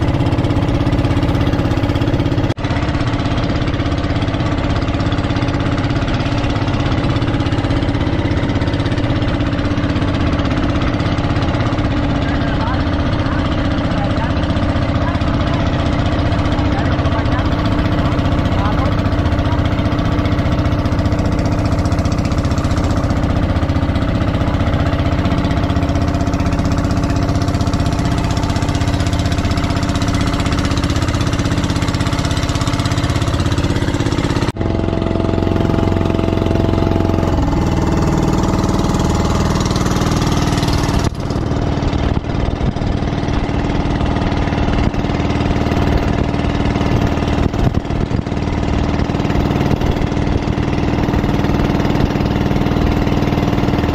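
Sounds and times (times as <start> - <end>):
boat engine running: 0.0 - 53.9
water rushing past hull: 0.0 - 53.9.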